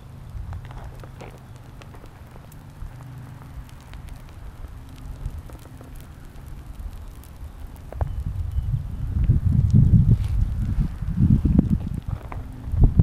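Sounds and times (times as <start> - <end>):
wind rumbling on microphone: 0.0 - 13.0
footsteps on sand and gravel: 10.0 - 12.4.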